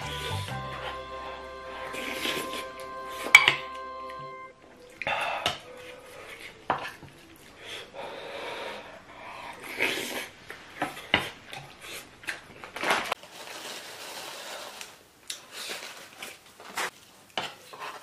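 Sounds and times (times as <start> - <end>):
plastic pouch rustling: 12.7 - 16.9.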